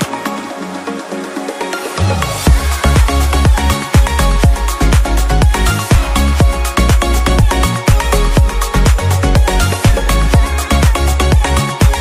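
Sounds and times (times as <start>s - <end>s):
electronic dance music: 0.0s - 12.0s
kick drum beat: 2.5s - 12.0s.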